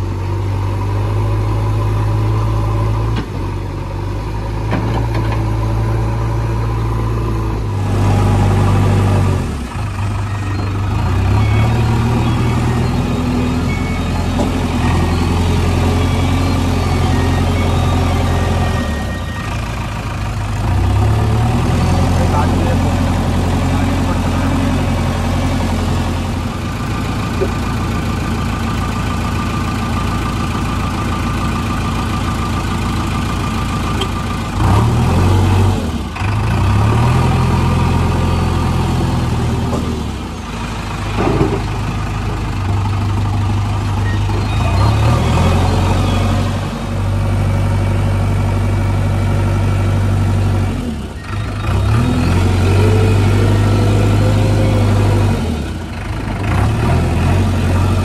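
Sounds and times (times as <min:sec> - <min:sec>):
diesel engine revving: 0:00.0 - 0:58.0.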